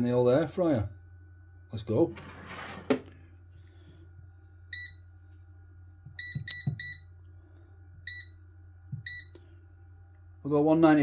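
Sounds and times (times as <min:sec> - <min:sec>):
control panel beeps: 0:06.1 - 0:07.1, 0:08.1 - 0:08.4, 0:09.0 - 0:09.3.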